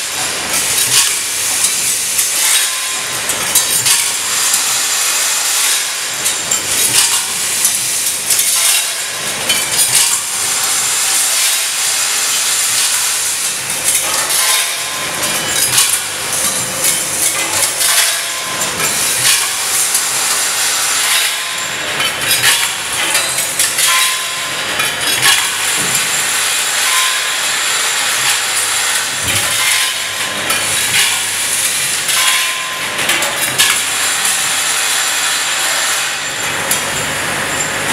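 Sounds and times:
metal parts rattling in feeder: 20.8s - 33.8s.

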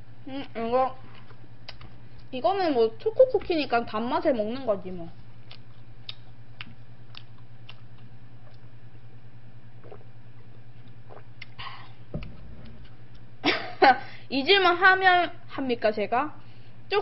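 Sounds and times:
steady low hum: 0.0s - 17.0s
faint chewing: 0.3s - 2.4s, 4.7s - 9.1s, 9.8s - 13.4s
sipping from a glass: 9.8s - 10.2s
gulp: 9.8s - 13.0s.

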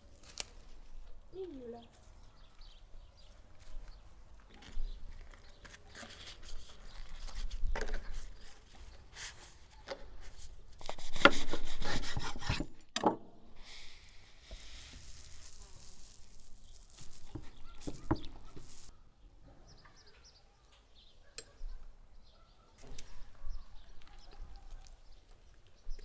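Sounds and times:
flatbread rustling: 3.2s - 12.6s, 13.6s - 18.9s.

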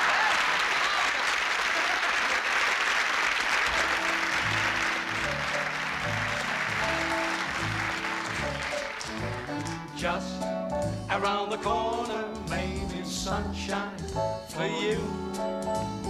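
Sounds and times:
audience applauding: 0.0s - 10.0s
band playing: 3.5s - 16.0s.

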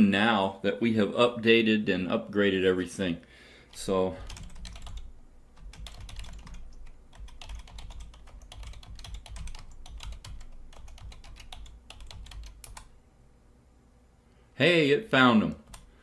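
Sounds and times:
computer keyboard typing: 3.7s - 12.9s, 15.5s - 15.9s.

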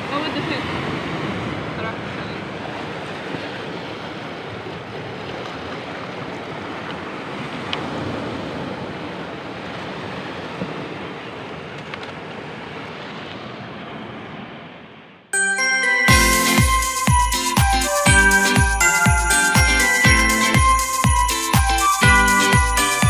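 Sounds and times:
small waves lapping among boulders: 0.0s - 14.5s.

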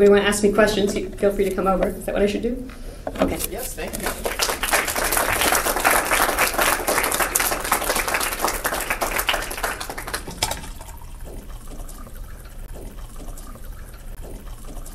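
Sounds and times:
audience applauding: 3.9s - 10.6s.

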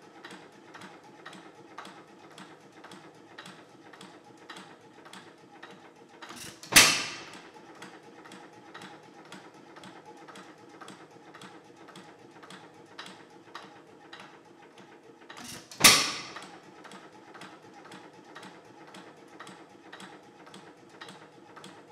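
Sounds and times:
engine flywheel clicking: 0.0s - 21.9s.

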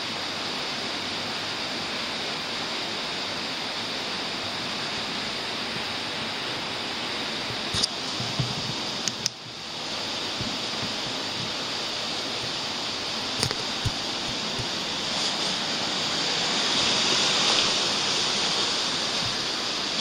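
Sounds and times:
steady rushing noise: 0.0s - 20.0s
short knocks: 10.4s - 11.7s.

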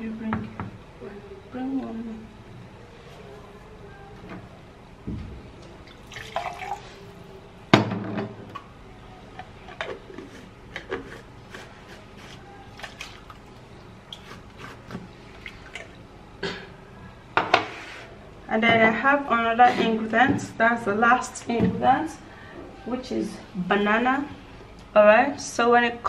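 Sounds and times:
liquid sloshing in a jar: 5.9s - 7.1s.

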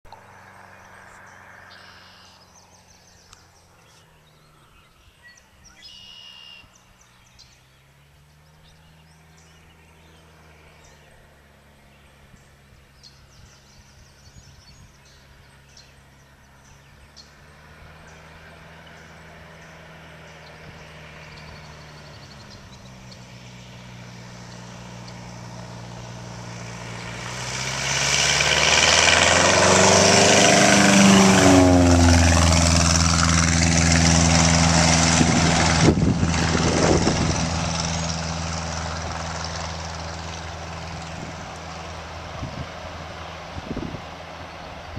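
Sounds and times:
small birds chirping: 0.1s - 26.2s
propeller plane engine: 0.1s - 44.9s.

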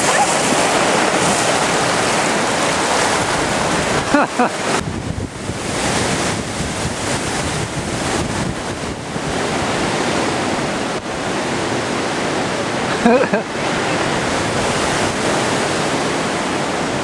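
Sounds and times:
water rushing down slide: 0.0s - 4.9s
wind noise on microphone: 0.0s - 12.9s, 13.5s - 17.0s.

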